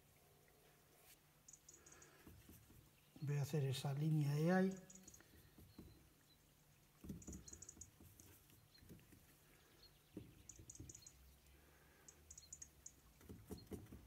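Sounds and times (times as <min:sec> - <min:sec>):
paintbrush tapping and scrubbing: 0:02.0 - 0:03.0, 0:04.8 - 0:06.2, 0:06.9 - 0:11.2, 0:12.8 - 0:14.0.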